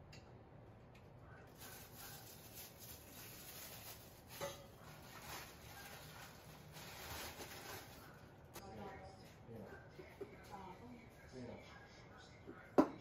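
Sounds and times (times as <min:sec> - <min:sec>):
packaging rustling: 0:01.6 - 0:08.4.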